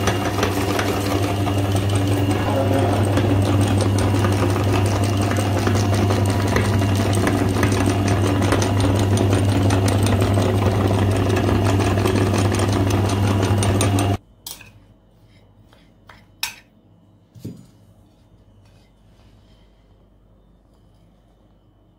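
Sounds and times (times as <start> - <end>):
electric meat grinder motor humming: 0.0 - 14.2.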